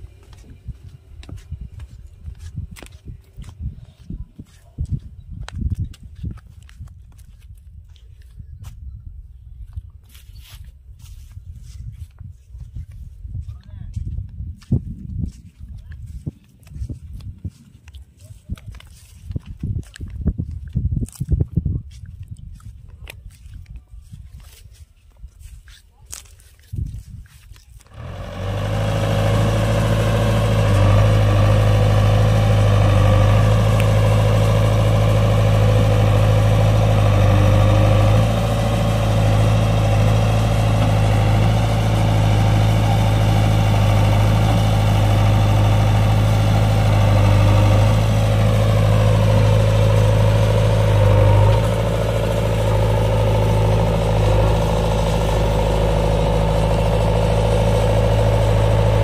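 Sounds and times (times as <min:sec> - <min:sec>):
diesel engine running: 0:00.0 - 0:05.2, 0:27.8 - 0:59.0.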